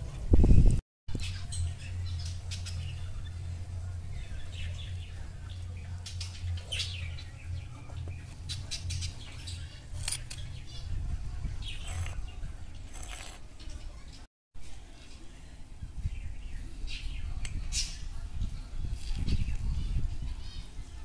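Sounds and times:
low steady hum: 0.0s - 14.0s
birds chirping: 0.0s - 21.0s.

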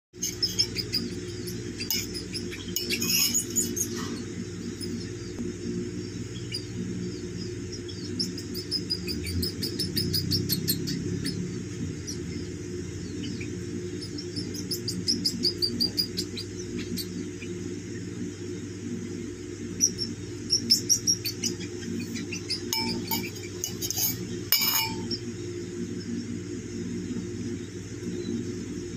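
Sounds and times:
steady low hum: 0.1s - 28.9s
baby squirrels chirping: 0.2s - 5.3s, 7.4s - 17.6s, 19.8s - 25.2s.

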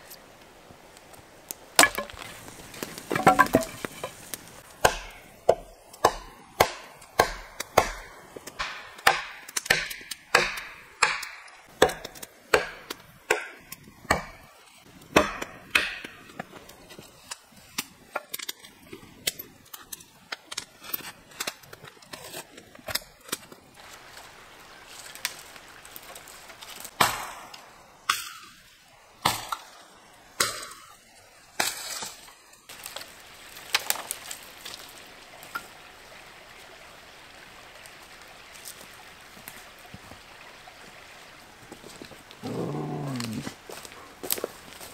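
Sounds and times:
wood being chopped: 1.8s - 4.2s, 4.8s - 14.4s, 15.1s - 16.4s, 26.8s - 28.4s, 29.2s - 29.8s.

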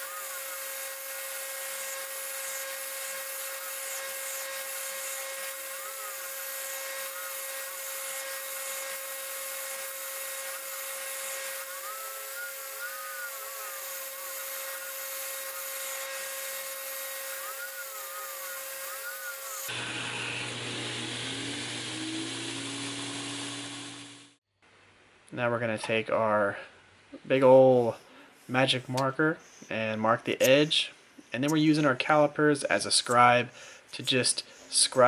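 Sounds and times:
steel hissing on grinding belt: 0.0s - 19.7s
belt grinder motor: 0.0s - 24.4s
grinder whines: 0.0s - 24.4s.

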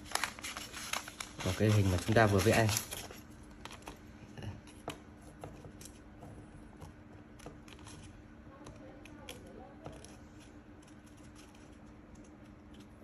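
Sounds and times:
paper handling: 0.0s - 4.0s
faint steady hum: 0.0s - 13.0s.

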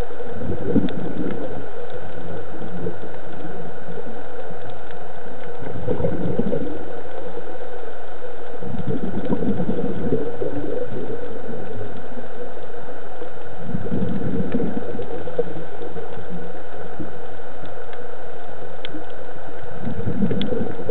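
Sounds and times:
steady underwater hiss: 0.0s - 20.9s
diver's exhaled bubbles: 0.4s - 1.7s, 5.7s - 7.0s, 8.6s - 12.0s, 13.6s - 17.1s, 19.8s - 20.9s.

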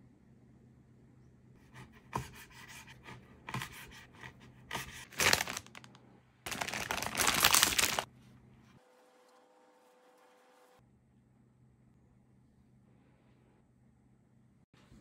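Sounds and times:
plastic bag crinkling and tearing: 5.0s - 8.1s.

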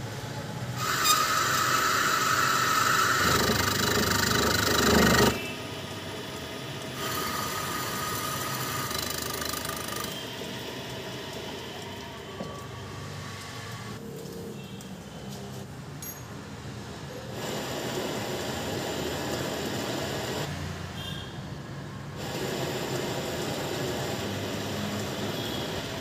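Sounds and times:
lathe running: 0.8s - 12.7s
metal lathe cutting with whine: 0.8s - 12.7s.

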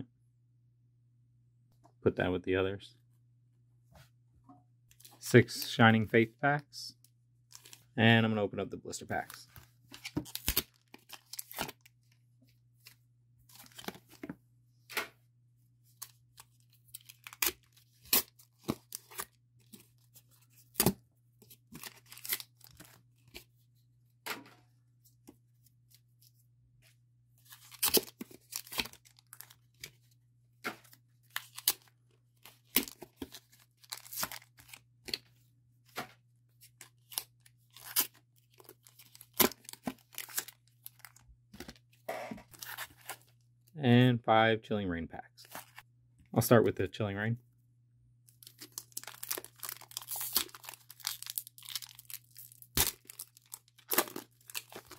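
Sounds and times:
cardboard packs ripping and crinkling: 21.8s - 22.9s, 32.6s - 34.7s, 48.4s - 54.9s.

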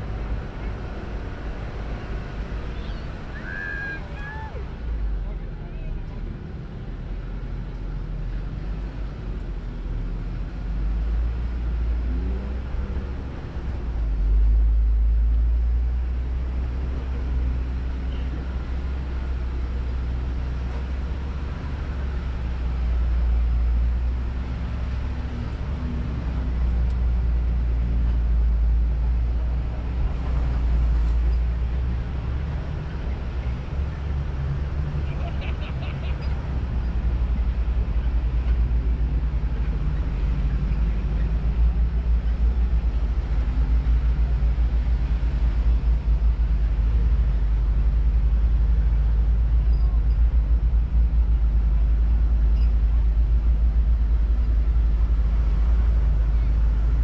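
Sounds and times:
off-road vehicle engine rumbling: 0.0s - 57.0s.

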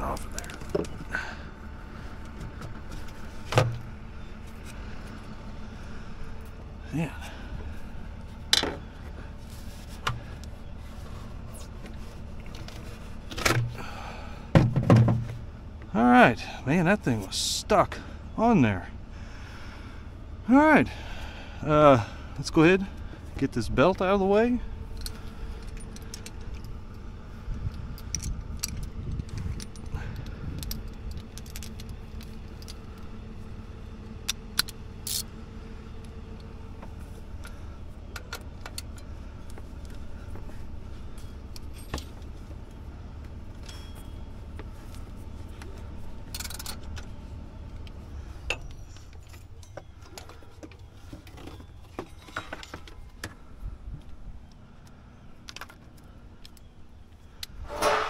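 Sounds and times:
metal tools clinking on engine: 0.0s - 9.4s, 21.7s - 58.0s
low rumble: 24.5s - 49.7s.

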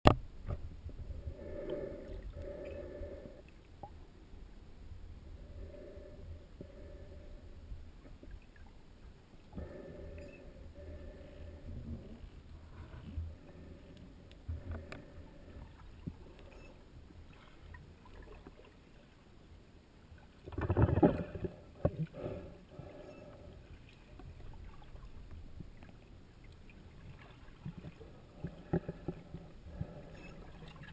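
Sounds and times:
low underwater rumble: 0.2s - 18.9s
faint clicks: 13.9s - 16.8s.

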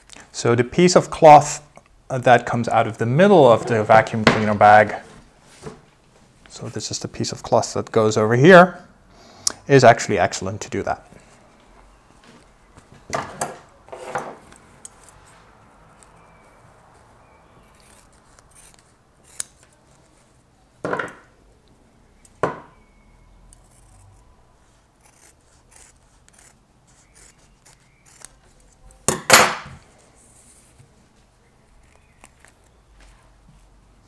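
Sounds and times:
scissors snipping fabric: 25.0s - 28.7s.

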